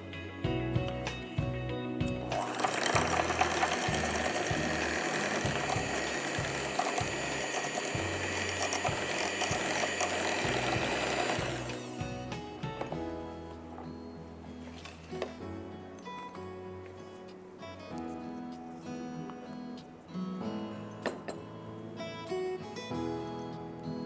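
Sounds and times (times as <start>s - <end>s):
electric hand mixer whine: 2.3s - 12.3s.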